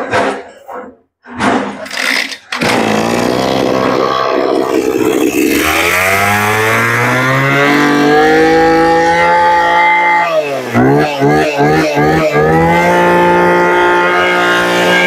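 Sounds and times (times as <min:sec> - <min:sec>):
brush cutter engine revving: 0:01.9 - 0:15.0.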